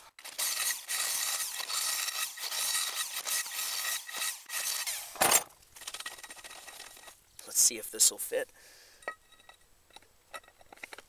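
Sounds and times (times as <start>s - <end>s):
drill grinding through steel: 0.0s - 7.1s.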